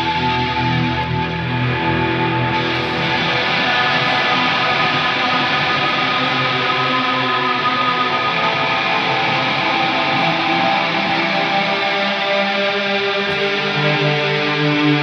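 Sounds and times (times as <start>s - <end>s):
distorted electric guitar with echo: 0.0s - 15.0s.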